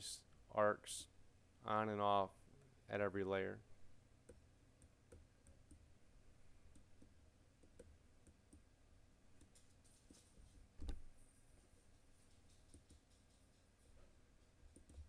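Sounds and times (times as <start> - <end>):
computer mouse clicks: 6.7 - 8.6, 14.7 - 15.0.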